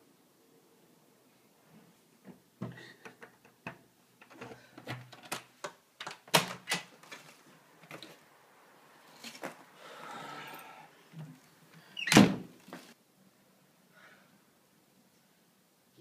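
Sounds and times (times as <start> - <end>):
door clicks and knocks: 6.0 - 6.9.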